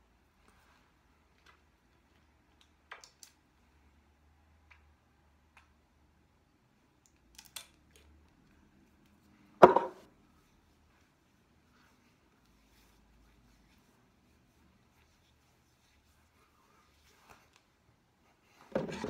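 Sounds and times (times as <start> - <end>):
loud knock: 9.6 - 10.0.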